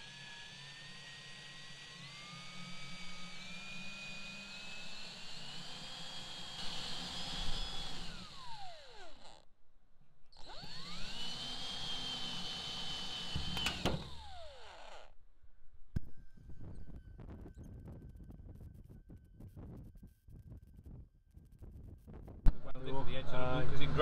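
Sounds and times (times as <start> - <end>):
cordless drill motor whine: 0.0 - 9.5, 10.3 - 15.2.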